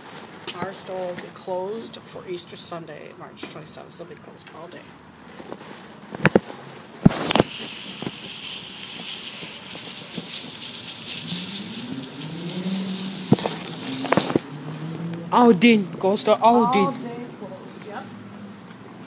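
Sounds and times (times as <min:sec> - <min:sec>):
rattling hiss: 0:05.4 - 0:19.0
car engine pulling away: 0:07.6 - 0:19.0.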